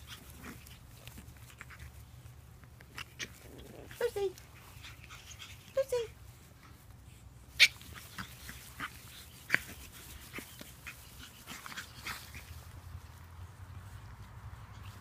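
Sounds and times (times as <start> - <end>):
puppies yipping: 7.5 - 12.8.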